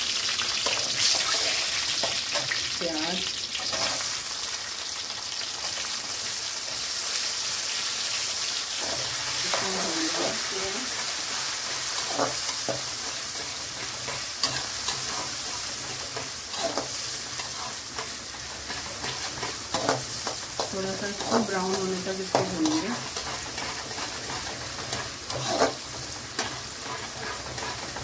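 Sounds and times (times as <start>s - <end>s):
onion sizzling in hot oil: 0.0s - 28.0s
metal spoon scraping pan: 11.7s - 25.8s, 26.4s - 28.0s.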